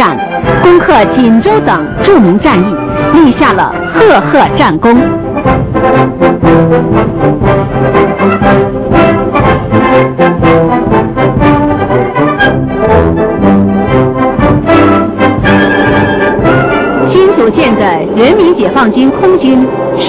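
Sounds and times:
brass band playing a march: 4.9s - 17.4s.

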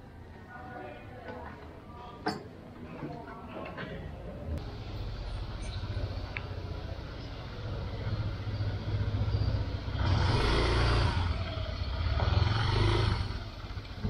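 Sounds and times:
motor scooter engine revving: 7.6s - 14.0s.

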